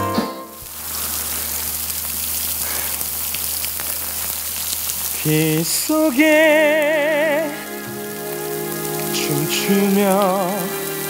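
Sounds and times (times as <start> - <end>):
artificial rain hissing: 0.0 - 11.0
man singing: 5.2 - 8.1, 9.0 - 11.0.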